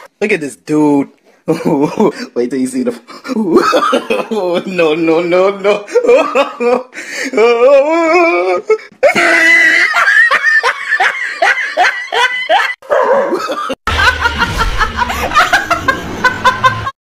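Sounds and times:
people laughing hard: 0:03.3 - 0:04.7, 0:05.6 - 0:07.2, 0:07.9 - 0:17.0.

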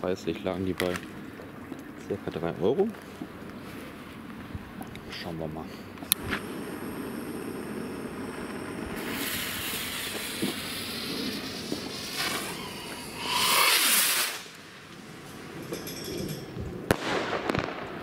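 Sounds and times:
firework fuse fizzing: 0:06.1 - 0:15.5
rocket launch whoosh: 0:06.2 - 0:14.6.

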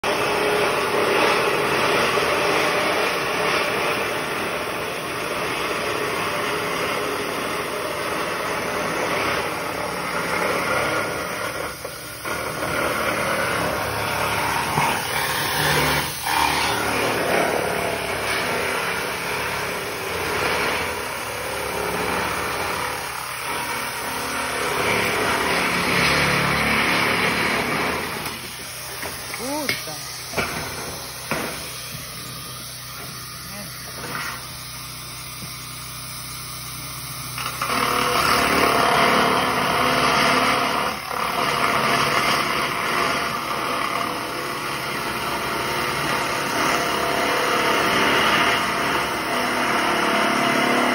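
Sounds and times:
power tool cutting steel panel: 0:00.0 - 0:50.9.

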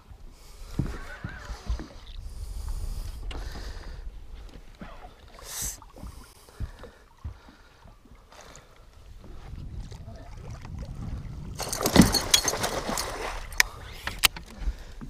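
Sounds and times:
fish splashing in water: 0:11.6 - 0:13.6.

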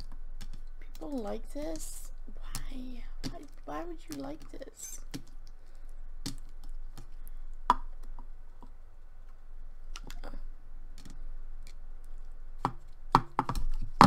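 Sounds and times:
slime squelching: 0:00.3 - 0:08.2.

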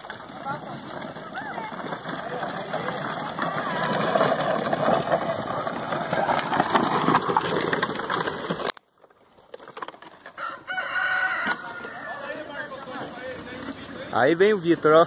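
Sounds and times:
plastic toy wheels rumbling: 0:00.0 - 0:15.0
rooster crowing: 0:10.3 - 0:12.5.

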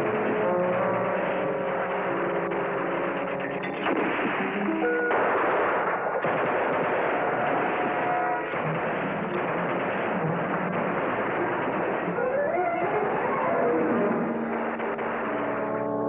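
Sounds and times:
background music with held notes: 0:00.0 - 0:06.3, 0:09.8 - 0:16.0
small-arms gunfire: 0:00.0 - 0:15.8.

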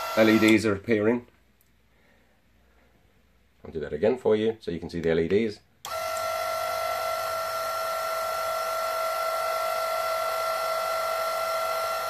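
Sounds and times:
electric motor whining: 0:00.0 - 0:00.6, 0:05.9 - 0:12.0.

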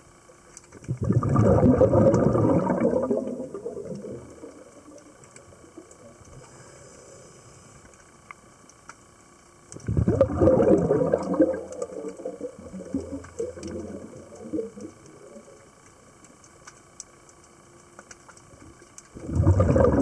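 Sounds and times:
faint clicks: 0:00.2 - 0:01.0, 0:02.1 - 0:07.0, 0:07.7 - 0:09.9, 0:10.7 - 0:20.0
air bubbles gurgling underwater: 0:00.8 - 0:06.4, 0:09.8 - 0:15.8, 0:18.5 - 0:20.0.

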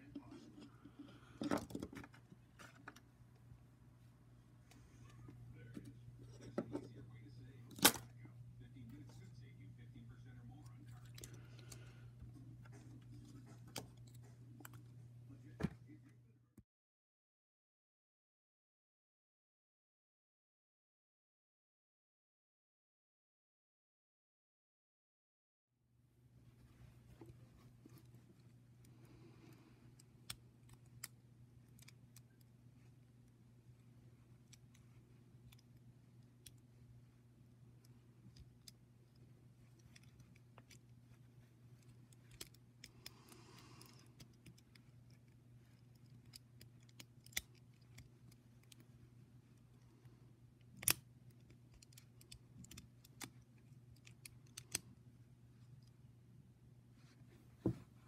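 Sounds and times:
low steady hum: 0:00.0 - 0:16.6, 0:25.8 - 0:58.0
plastic toy clicks and snaps: 0:50.7 - 0:53.4, 0:54.0 - 0:54.8.

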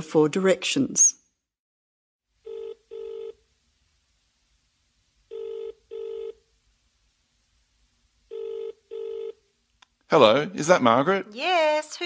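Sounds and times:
telephone ringing tone: 0:02.4 - 0:03.4, 0:05.3 - 0:06.4, 0:08.3 - 0:09.4.

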